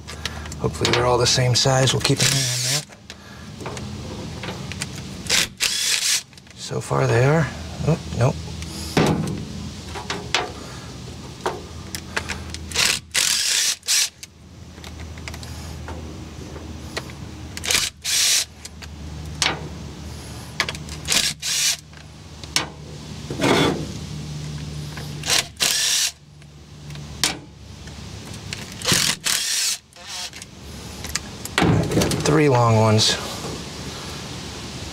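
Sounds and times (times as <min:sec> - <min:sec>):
ratchet clicking: 0:04.8 - 0:06.4, 0:12.6 - 0:14.3, 0:17.6 - 0:18.7, 0:25.2 - 0:26.2, 0:28.5 - 0:30.4.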